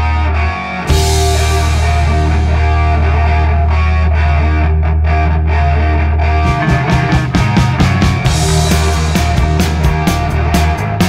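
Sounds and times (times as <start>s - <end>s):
distorted electric guitar chords: 0.0s - 11.0s
drum beat: 0.9s - 3.9s, 6.4s - 11.0s
cymbal crash: 0.9s - 4.4s, 6.4s - 10.8s
low bass note: 0.9s - 4.7s, 6.4s - 10.8s.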